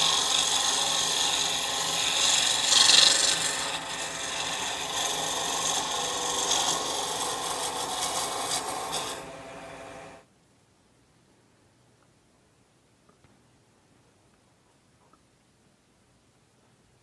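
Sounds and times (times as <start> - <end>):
lathe gouge scraping wood: 0.0 - 10.2.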